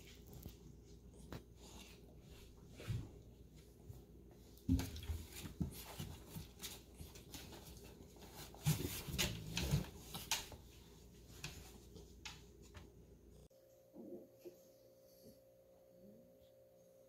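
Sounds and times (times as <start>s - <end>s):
puppies rustling and bumping: 0.0s - 13.0s.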